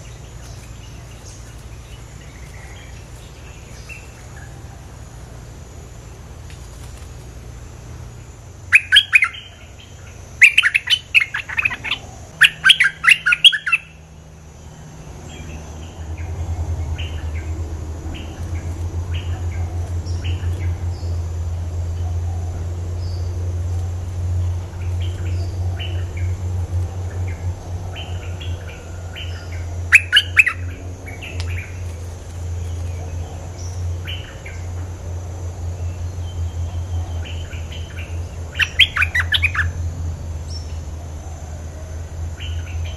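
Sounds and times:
bird singing chattering phrases: 0:08.7 - 0:14.0, 0:36.3 - 0:39.8.

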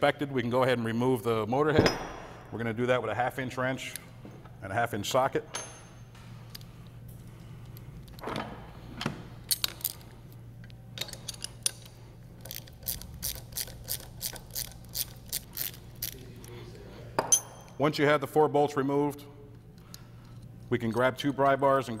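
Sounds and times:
ratchet wrench clicking: 0:11.0 - 0:16.2.

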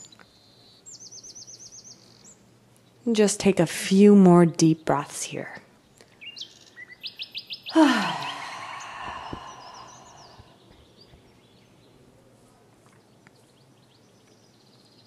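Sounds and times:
faint bird chirps: 0:05.9 - 0:12.1
woman sighing: 0:07.7 - 0:10.6.

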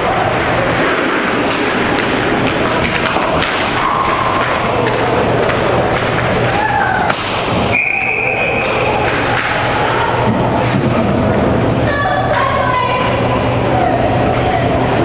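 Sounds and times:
hockey sticks clacking: 0:00.3 - 0:07.7, 0:08.4 - 0:11.4.

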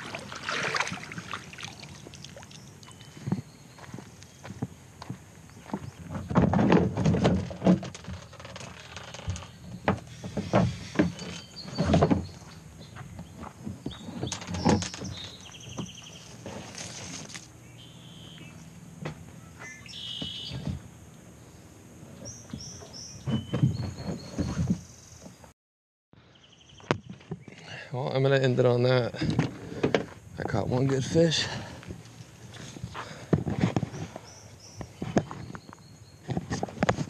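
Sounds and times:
small birds chirping: 0:01.7 - 0:04.7, 0:09.4 - 0:16.6, 0:17.5 - 0:25.5, 0:26.3 - 0:28.1, 0:32.0 - 0:36.6.

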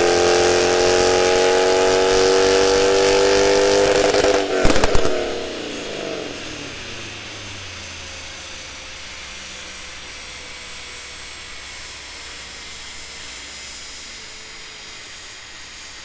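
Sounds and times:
airy rush: 0:03.0 - 0:07.6.

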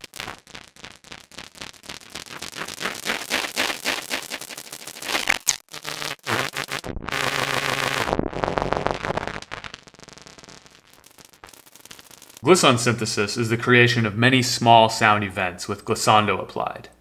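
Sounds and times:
buzzing synthesizer tone: 0:00.0 - 0:12.4
crackling synthesizer clicks: 0:00.0 - 0:12.6.

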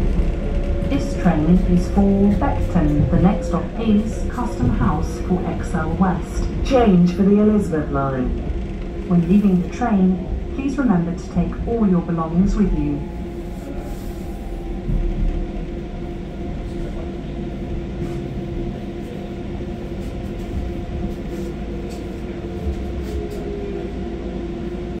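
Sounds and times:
wheels rumbling on rails: 0:00.0 - 0:25.0.

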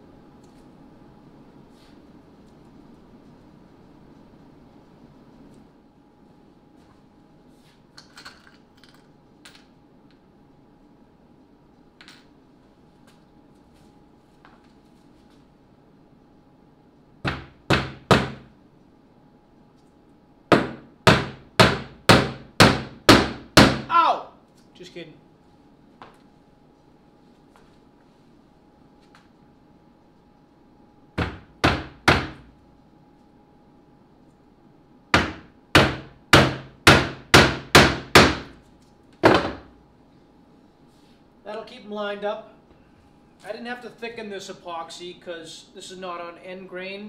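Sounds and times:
hammer striking wood: 0:17.3 - 0:18.5, 0:20.5 - 0:23.9, 0:31.2 - 0:32.5, 0:35.2 - 0:38.5.

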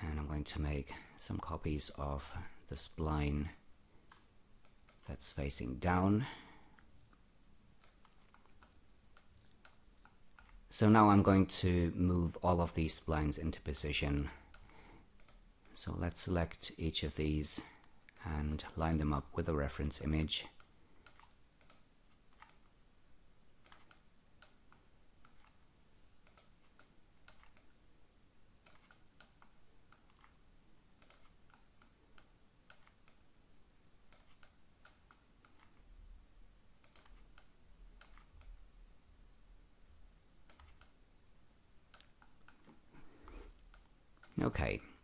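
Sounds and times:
computer mouse clicks: 0:03.4 - 0:05.2, 0:07.8 - 0:10.7, 0:14.0 - 0:15.8, 0:19.8 - 0:22.8, 0:23.6 - 0:27.8, 0:28.6 - 0:30.4, 0:31.0 - 0:33.2, 0:34.1 - 0:35.9, 0:36.8 - 0:38.6, 0:40.4 - 0:41.0, 0:41.9 - 0:44.9.

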